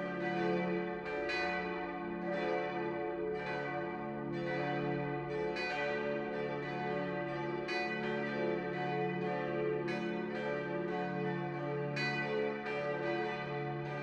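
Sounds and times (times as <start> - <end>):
church bells ringing: 0.0 - 14.0.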